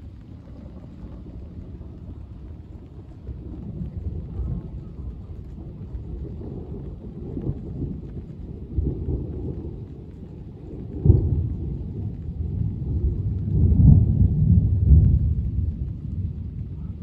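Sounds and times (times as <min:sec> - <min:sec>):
thunder rumbling: 0:00.0 - 0:17.0
thunder crack: 0:05.4 - 0:17.0.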